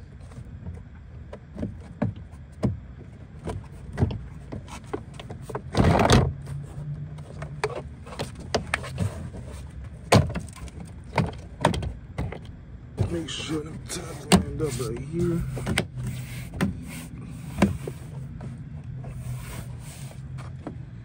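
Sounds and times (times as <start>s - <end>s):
rustling scrape: 7.8s - 10.0s, 13.0s - 20.6s.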